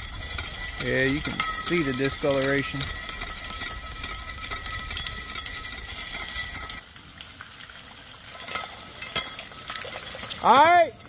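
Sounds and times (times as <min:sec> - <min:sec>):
ticks and clinks: 0:00.0 - 0:06.8.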